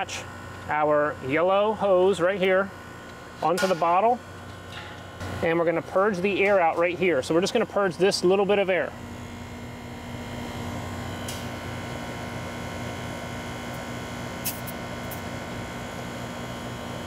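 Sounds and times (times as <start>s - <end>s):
gas hissing through hose: 14.4s - 15.2s.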